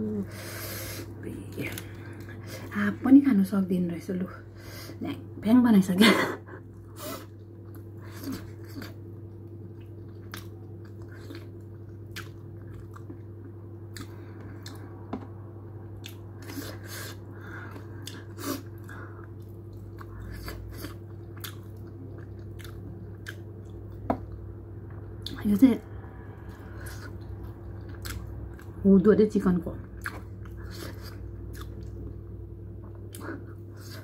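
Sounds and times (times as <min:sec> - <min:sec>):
low hum: 0:00.0 - 0:34.0
chewing with wet mouth clicks: 0:07.4 - 0:13.3, 0:13.9 - 0:14.9, 0:16.0 - 0:16.7, 0:17.6 - 0:24.4, 0:26.5 - 0:28.8, 0:29.9 - 0:32.2.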